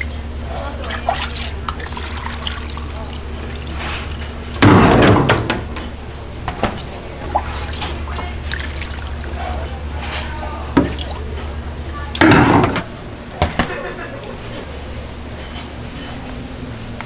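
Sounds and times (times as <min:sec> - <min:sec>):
liquid pouring and splashing: 0:00.0 - 0:04.7, 0:07.2 - 0:09.8
steady low hum: 0:00.0 - 0:17.0.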